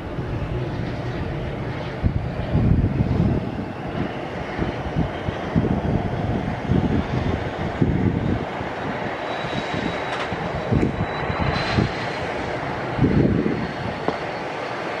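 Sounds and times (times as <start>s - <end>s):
low rumbles: 0.0s - 9.1s
jet engine running: 0.0s - 15.0s.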